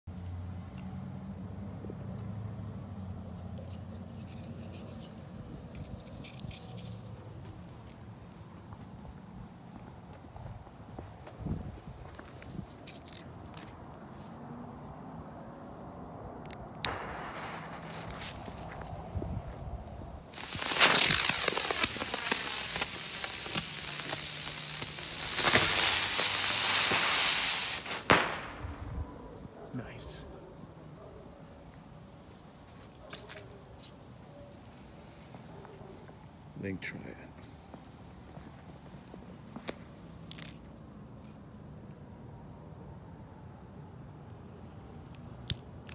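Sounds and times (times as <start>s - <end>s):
firework crackling pops: 16.6s - 19.1s, 20.3s - 29.0s
firework hissing fizz: 16.7s - 19.1s, 20.3s - 28.8s.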